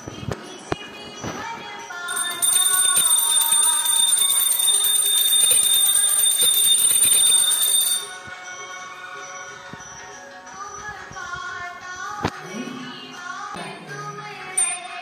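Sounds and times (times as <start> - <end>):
music with singing: 0.0 - 4.4, 5.8 - 15.0
small hand bell ringing: 2.1 - 8.3, 14.6 - 15.0.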